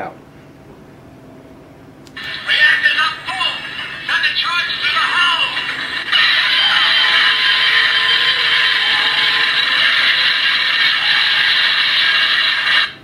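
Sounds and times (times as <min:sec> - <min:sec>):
dense mechanical noise from speaker: 0:00.0 - 0:13.0.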